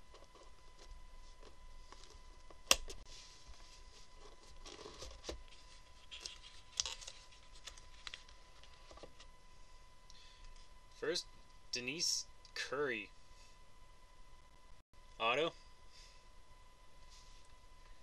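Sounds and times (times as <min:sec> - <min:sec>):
cardboard scraping and rustling: 0:03.1 - 0:09.2.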